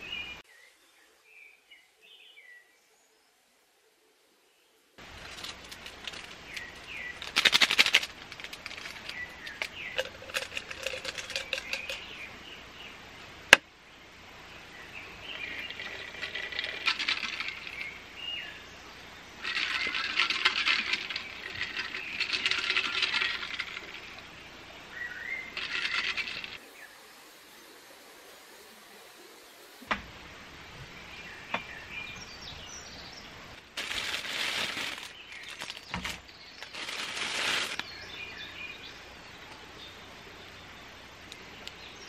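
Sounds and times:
water pouring into tumbler: 5.0s - 12.1s, 15.3s - 18.0s, 19.4s - 24.2s
birds chirping: 5.0s - 13.0s, 13.9s - 42.0s.

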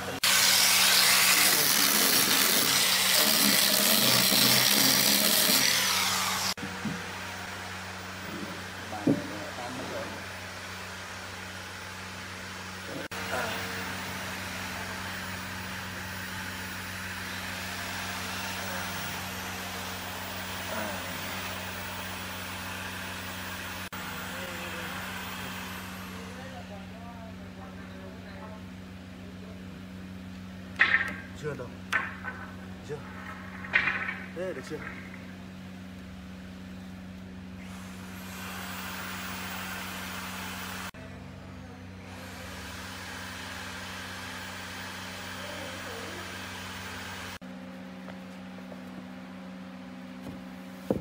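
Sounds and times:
power sander on hardwood: 0.0s - 11.8s, 12.5s - 26.6s, 42.2s - 47.4s
machine droning hum: 0.0s - 51.0s.

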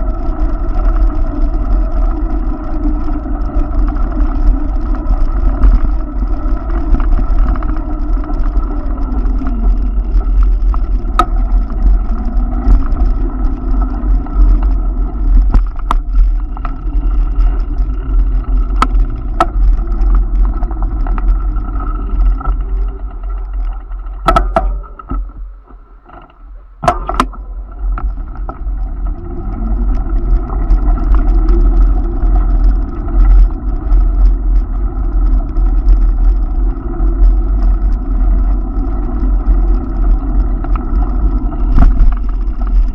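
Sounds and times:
wind buffeting microphone: 0.0s - 42.9s.

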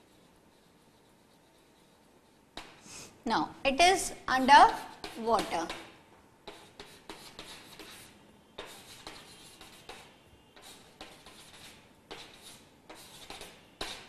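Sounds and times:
chalk tapping on blackboard: 2.6s - 2.8s, 4.6s - 14.0s.

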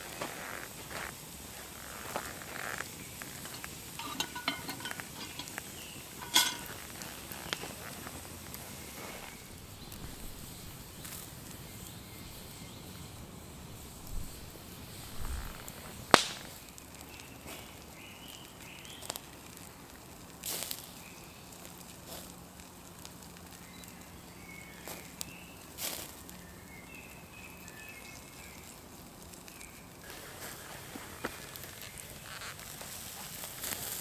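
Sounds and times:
campfire crackling: 0.0s - 34.0s
sharp fire pops: 13.6s - 17.7s, 20.4s - 21.0s.

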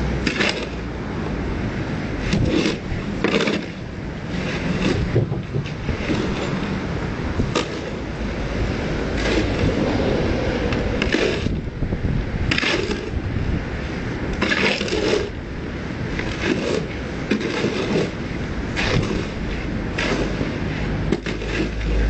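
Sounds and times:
steady low rumble: 0.0s - 22.0s
hand tools scraping stone: 0.2s - 0.8s, 2.2s - 6.9s, 7.5s - 8.1s, 9.1s - 9.8s, 11.0s - 11.6s, 12.5s - 13.2s, 14.3s - 15.4s, 16.1s - 22.0s.

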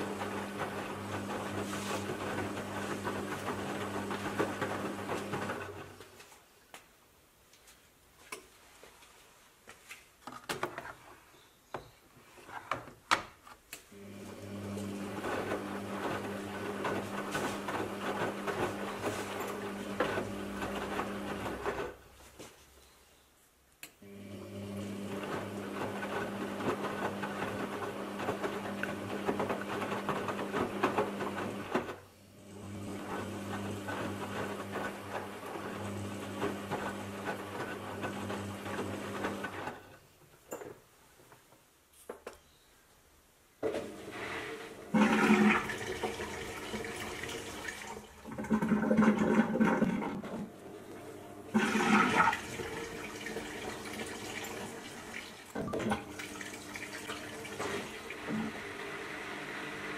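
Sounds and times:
washing machine motor hum: 0.0s - 6.1s, 13.9s - 22.1s, 24.0s - 39.9s, 43.8s - 59.9s.

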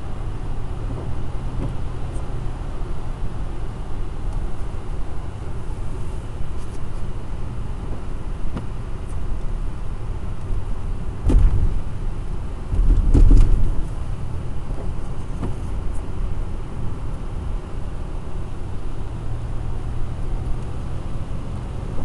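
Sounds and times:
engine and tyre rumble: 0.0s - 22.0s
thumps from road bumps: 0.8s - 2.3s, 7.9s - 9.3s, 11.2s - 12.0s, 12.6s - 16.3s.

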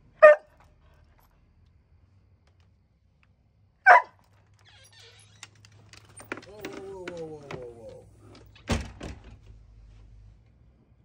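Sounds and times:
dog barking: 0.2s - 0.6s, 3.9s - 4.2s.

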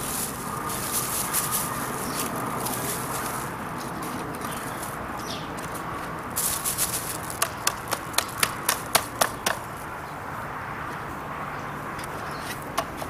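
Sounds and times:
plastic bag and dry grass rustling: 0.0s - 8.9s.

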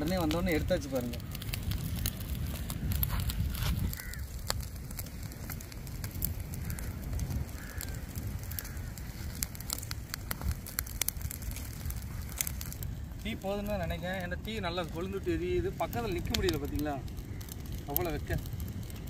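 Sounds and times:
fire crackling and popping: 0.0s - 19.0s
low fire rumble: 0.0s - 19.0s
faint bird calls: 3.8s - 4.4s, 6.6s - 9.4s.

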